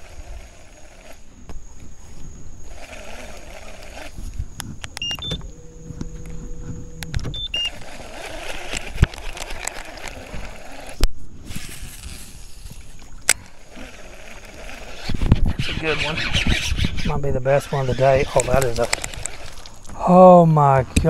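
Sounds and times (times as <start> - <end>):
electric motor humming: 0.0 - 11.1, 11.7 - 20.0
gear clicking and knocking: 2.7 - 11.1
short electronic beeps: 5.0 - 7.8.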